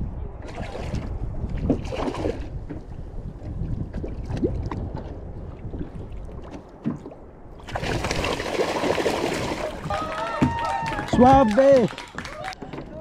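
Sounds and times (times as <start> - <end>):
low wind rumble: 0.0 - 13.0
water sloshing against kayak hull: 0.3 - 11.4
fish thrashing and splashing: 6.0 - 9.9.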